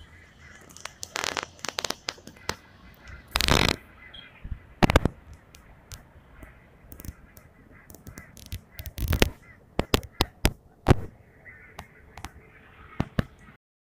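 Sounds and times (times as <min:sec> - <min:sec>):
fingers handling phone microphone: 0:00.6 - 0:02.6, 0:03.3 - 0:03.8, 0:04.8 - 0:06.0, 0:06.9 - 0:11.1.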